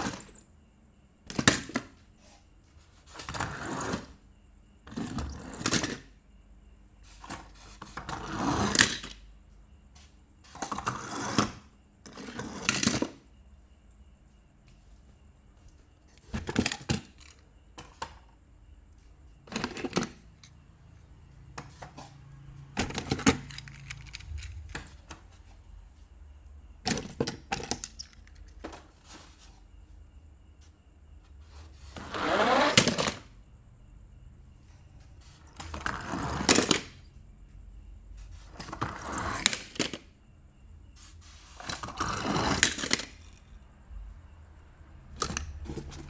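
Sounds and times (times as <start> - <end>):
toy cars rattling on plastic: 22.8 - 25.0, 41.8 - 43.4.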